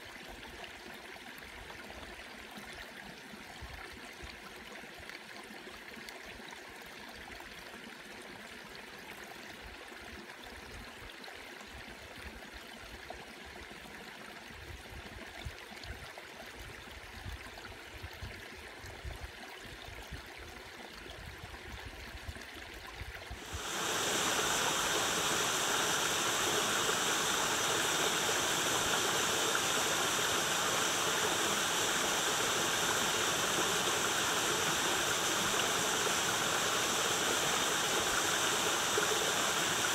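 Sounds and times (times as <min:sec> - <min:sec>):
stream rushing over rocks: 0:23.4 - 0:39.9.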